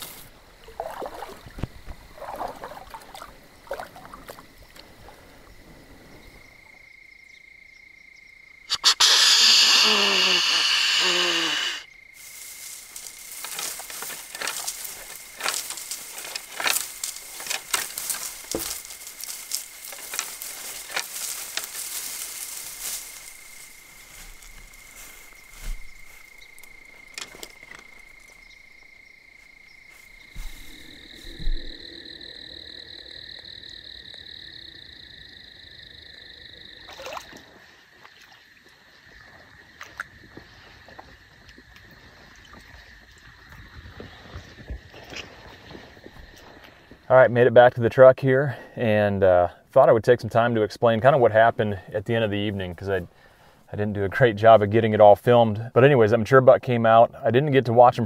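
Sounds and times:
thin high-pitched call: 0:08.7 - 0:11.9.

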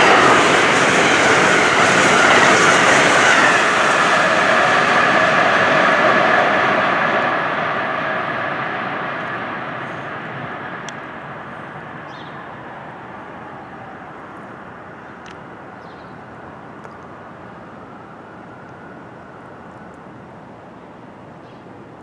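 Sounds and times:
train rumbling: 0:00.0 - 0:15.4.

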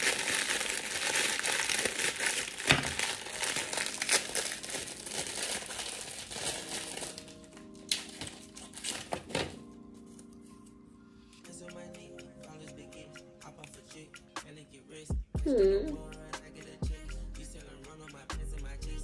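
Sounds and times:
plastic wrapper crinkling and tearing: 0:00.0 - 0:09.6
soft background music: 0:00.0 - 0:19.0.

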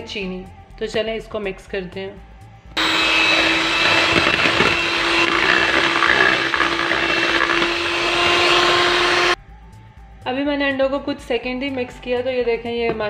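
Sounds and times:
electric hand mixer whirring: 0:02.8 - 0:09.4.

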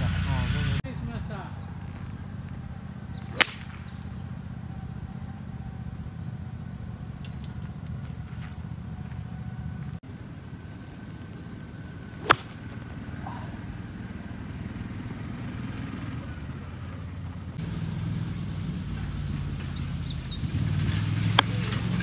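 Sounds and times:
golf club striking ball: 0:03.1 - 0:04.4, 0:12.1 - 0:13.6, 0:21.2 - 0:21.6.

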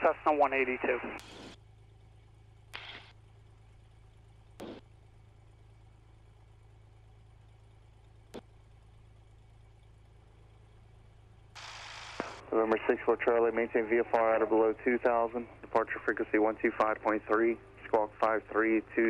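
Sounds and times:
radio transmission: 0:00.0 - 0:01.2, 0:02.8 - 0:03.1, 0:11.6 - 0:19.0
radio hiss: 0:00.0 - 0:01.6, 0:02.8 - 0:03.1, 0:11.6 - 0:19.0
aircraft engine idling: 0:00.0 - 0:19.0.

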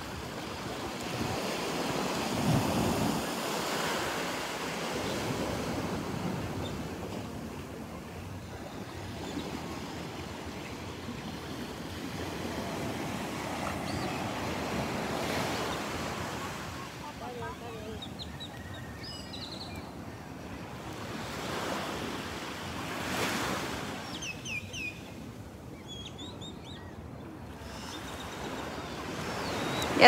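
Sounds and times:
small waves breaking on beach: 0:00.0 - 0:18.2.

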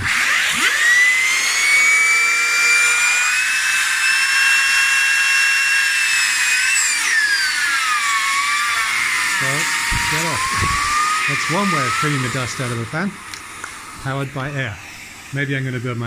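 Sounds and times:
cooling fan whining: 0:00.0 - 0:16.0
rush of air from blower: 0:09.4 - 0:16.0.

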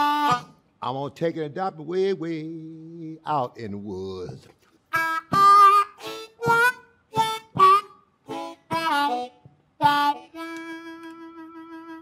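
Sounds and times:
blues harmonica: 0:00.0 - 0:01.0, 0:04.8 - 0:12.0.

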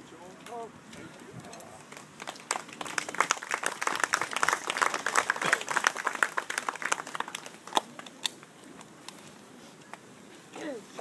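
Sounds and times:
group of people applauding: 0:01.8 - 0:08.1.

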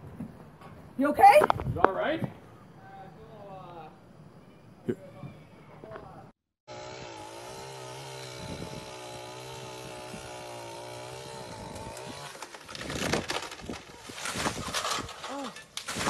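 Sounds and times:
chainsaw cutting: 0:06.7 - 0:16.0
branches crashing and cracking: 0:09.3 - 0:16.0.

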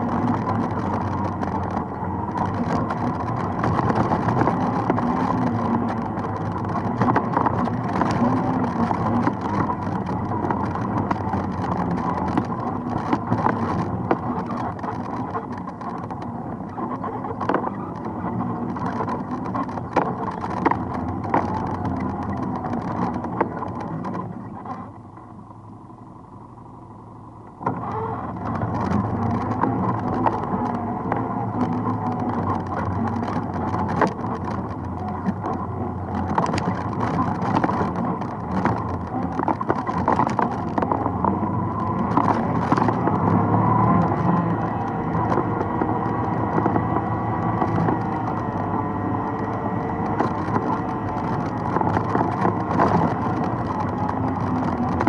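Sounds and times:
vehicle rattling over rocks: 0:00.0 - 0:25.3, 0:27.6 - 0:55.0
atv engine revving: 0:27.7 - 0:55.0.

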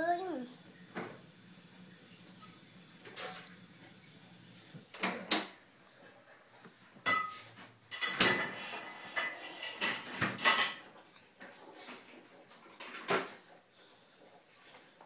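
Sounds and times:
dishes and cutlery clinking: 0:07.0 - 0:13.4.

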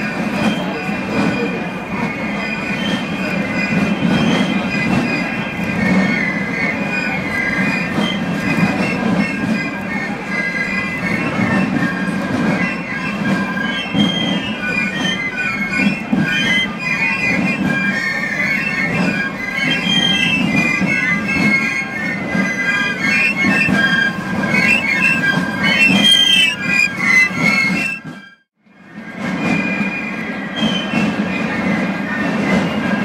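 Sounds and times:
side drums rolling: 0:00.0 - 0:28.3, 0:28.9 - 0:33.0
piccolos playing shrill melody: 0:02.3 - 0:28.4.

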